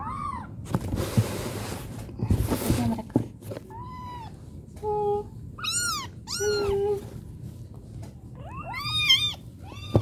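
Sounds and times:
kittens meowing: 5.6s - 7.0s, 8.4s - 10.0s.

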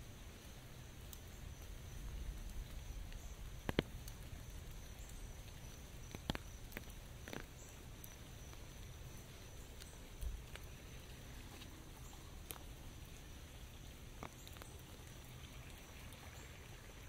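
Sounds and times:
light rain hiss: 0.0s - 17.0s
water drops tapping on umbrella: 2.4s - 12.8s, 14.2s - 15.2s.

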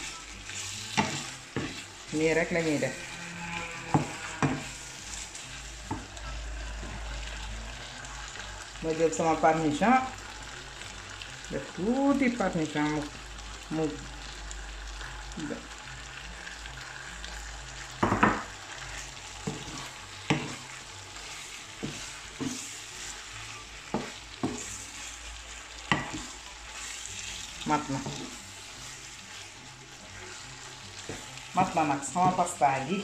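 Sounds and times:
wooden spoon stirring pasta: 0.0s - 10.2s, 16.6s - 32.9s
low sizzle: 0.0s - 33.0s
spoon knocking against pan: 3.9s - 4.7s, 18.0s - 18.5s.

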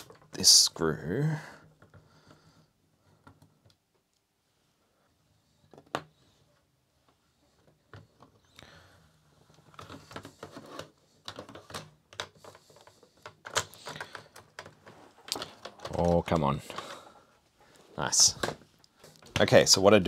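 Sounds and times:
small plastic clicks and rattles: 5.5s - 17.2s.

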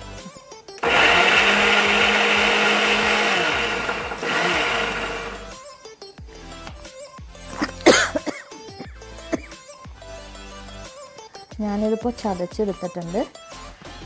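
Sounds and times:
mixer grinder running: 0.8s - 5.5s.

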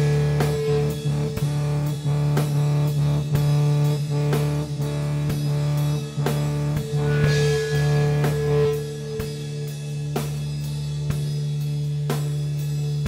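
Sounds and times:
low guitar drone: 0.0s - 13.0s
cymbal ringing: 6.9s - 12.5s.

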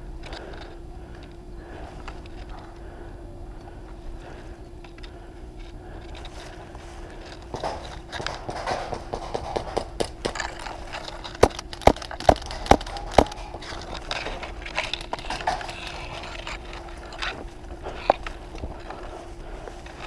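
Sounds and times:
rustling through dry undergrowth: 0.0s - 20.0s
sharp cracks: 7.3s - 19.0s.

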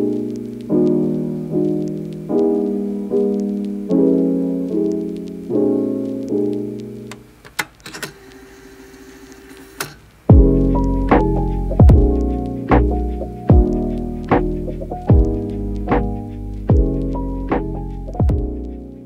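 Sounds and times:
soft piano chords: 0.0s - 7.4s, 10.3s - 19.0s.

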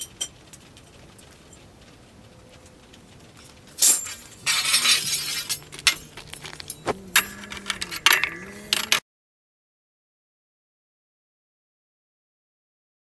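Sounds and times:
metal scraping on metal: 3.4s - 9.0s
metal clinks: 3.5s - 9.0s
metal bar clanking: 3.8s - 9.0s.

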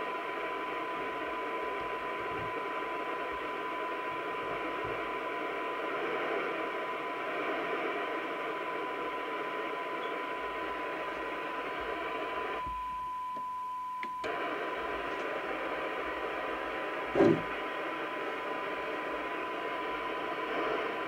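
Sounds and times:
radio hiss: 0.0s - 13.0s, 14.0s - 21.0s
short thump: 17.2s - 17.5s.

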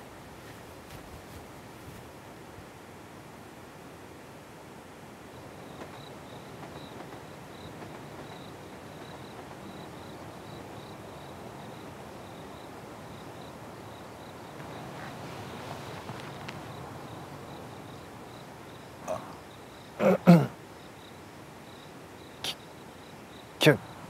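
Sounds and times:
night outdoor ambience hiss: 0.0s - 24.0s
cricket chirping: 5.2s - 24.0s.

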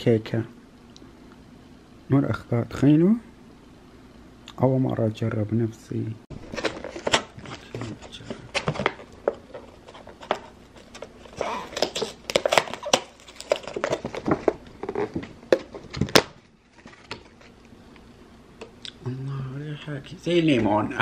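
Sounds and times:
plastic container crackling: 6.3s - 17.5s.

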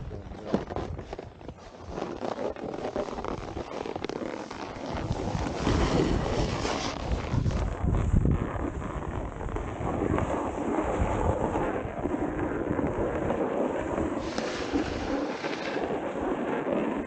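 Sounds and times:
snowboards scraping on snow: 0.2s - 17.0s
wind buffeting microphone: 4.9s - 17.0s.

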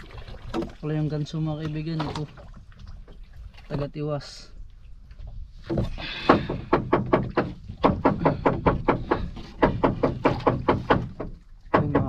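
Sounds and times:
fish flapping on wooden deck: 5.7s - 12.0s.

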